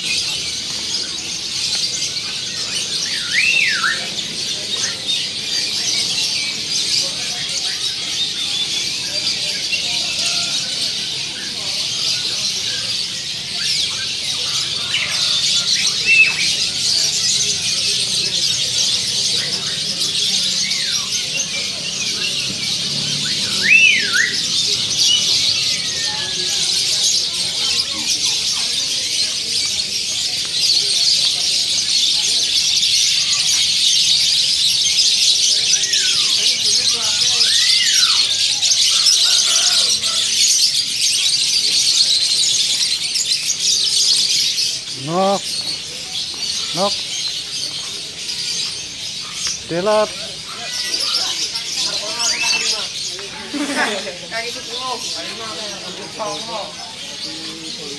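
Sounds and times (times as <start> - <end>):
songbirds chirping and chattering: 0.0 - 57.9
whistled bird notes: 2.6 - 5.2, 18.7 - 27.9.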